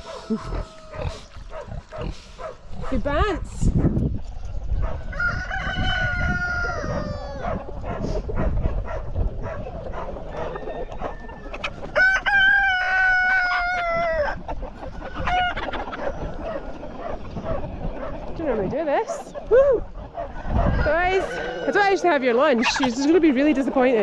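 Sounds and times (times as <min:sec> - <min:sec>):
chickens clucking: 0:00.0 - 0:24.0
cockerels crowing: 0:05.1 - 0:07.7, 0:10.2 - 0:14.4.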